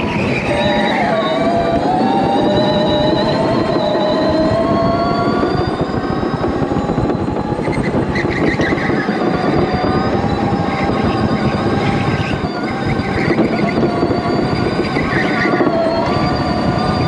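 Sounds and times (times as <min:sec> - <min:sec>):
electric motor whine: 0:00.0 - 0:17.0
kart rumbling on track: 0:00.0 - 0:17.0.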